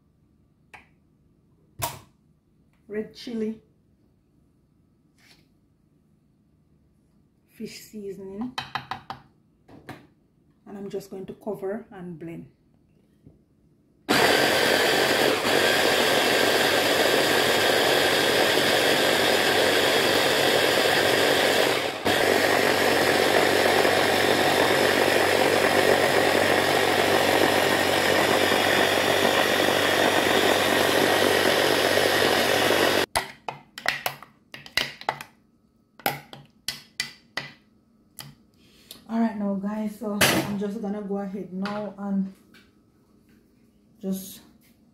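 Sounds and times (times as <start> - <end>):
electric blender running: 14.1 - 33.1.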